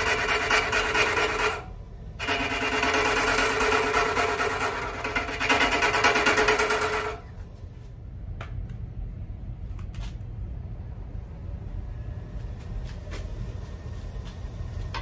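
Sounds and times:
lathe tool chattering on log: 0:00.0 - 0:07.3
low hum: 0:06.6 - 0:15.0.

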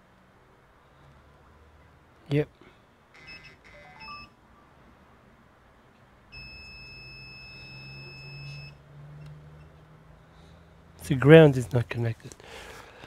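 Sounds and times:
multimeter continuity beep: 0:03.2 - 0:04.4, 0:06.3 - 0:08.8.

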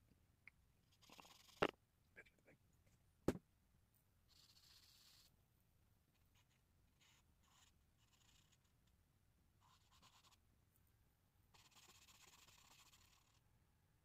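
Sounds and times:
charcoal scratching on paper: 0:04.3 - 0:05.3, 0:09.6 - 0:10.4.

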